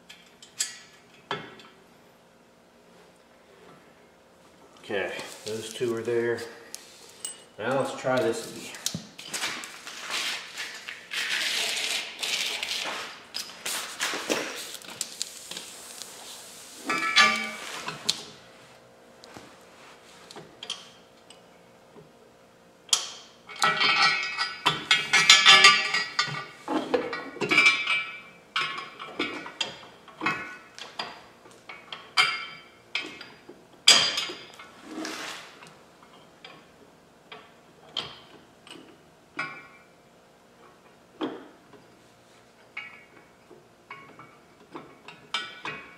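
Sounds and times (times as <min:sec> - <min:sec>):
metal bolts and tools clinking: 0:16.9 - 0:17.6, 0:22.9 - 0:31.2.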